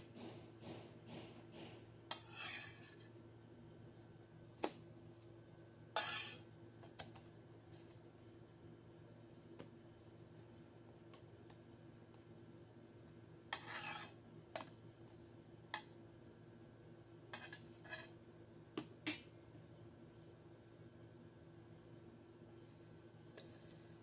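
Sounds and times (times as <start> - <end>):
metal spatula scraping frying pan: 2.1 - 3.1, 6.0 - 6.4, 13.5 - 14.2, 17.4 - 18.1.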